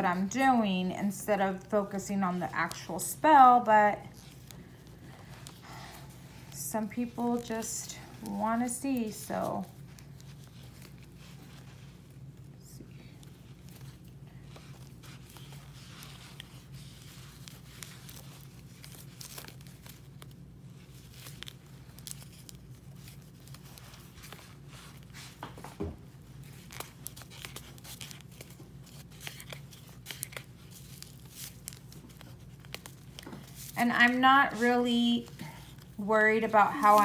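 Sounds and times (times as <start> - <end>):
fabric rustling and crinkling: 0.0 - 37.0
steady low hum: 0.0 - 37.0.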